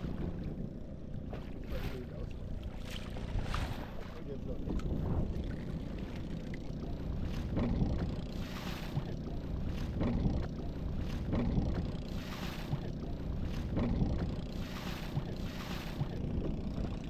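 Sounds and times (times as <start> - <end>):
boat engine low rumble: 0.0 - 17.0
water washing against hull: 0.0 - 17.0.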